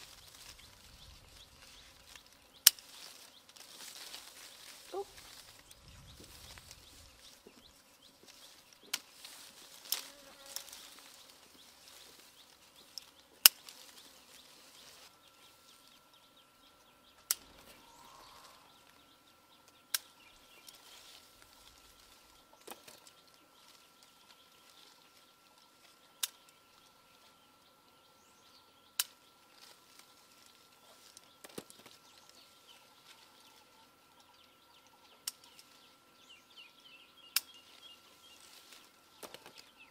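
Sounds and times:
faint outdoor background: 0.0s - 39.9s
fruit stems snapping clicks: 2.1s - 2.9s, 8.8s - 9.1s, 17.2s - 17.6s, 19.6s - 20.1s, 26.2s - 26.6s, 29.0s - 29.2s, 35.2s - 35.6s, 37.3s - 37.6s.

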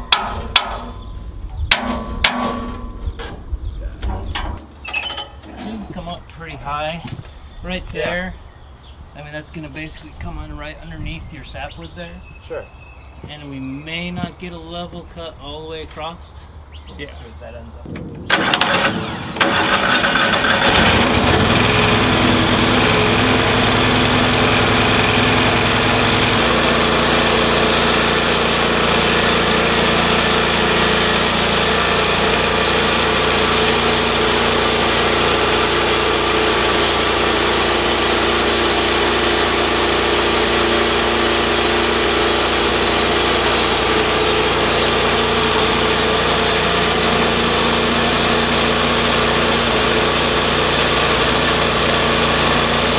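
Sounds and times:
sawmill engine running: 18.3s - 52.9s.

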